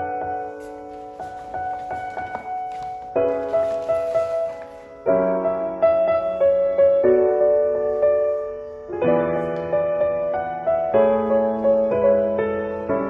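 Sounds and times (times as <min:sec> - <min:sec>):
piano chords: 0:00.0 - 0:13.0.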